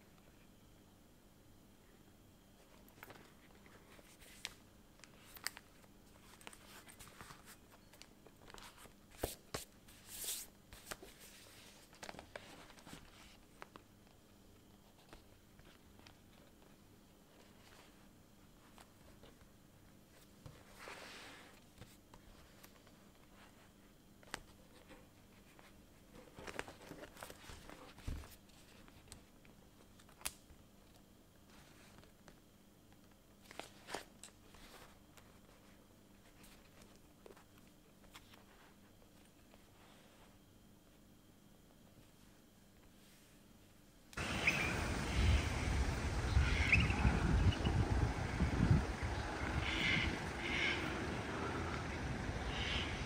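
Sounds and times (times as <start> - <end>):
notebook rustling: 2.6 - 14.0, 20.1 - 30.1.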